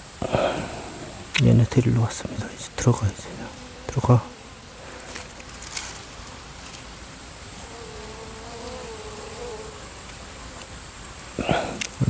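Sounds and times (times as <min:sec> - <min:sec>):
bees buzzing: 0:00.2 - 0:12.0
bee flying close by: 0:02.7 - 0:10.7.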